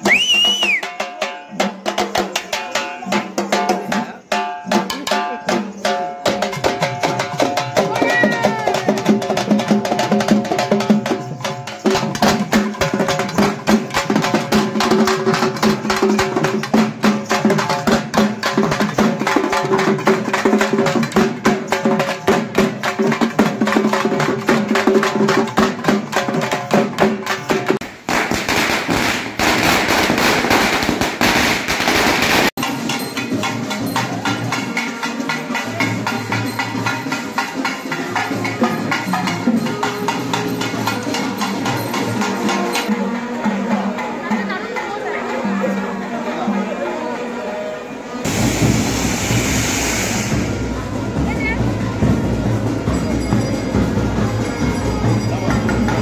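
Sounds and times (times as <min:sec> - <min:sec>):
frame drums beating fast rhythm: 0:00.0 - 0:44.8, 0:50.3 - 0:56.0
firecrackers crackling: 0:27.5 - 0:32.6, 0:48.3 - 0:51.6.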